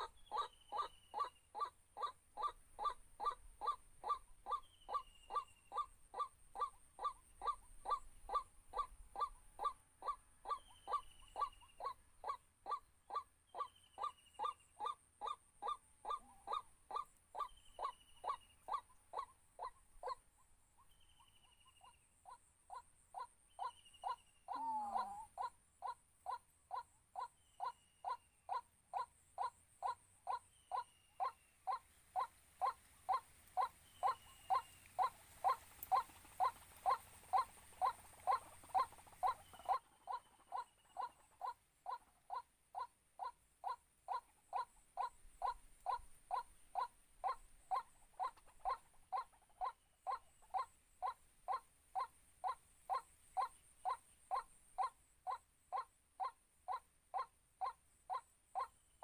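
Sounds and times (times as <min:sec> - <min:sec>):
harsh bird squawk: 0:00.0 - 0:20.2, 0:22.3 - 0:58.7
waterhen hollow call: 0:23.6 - 0:30.0.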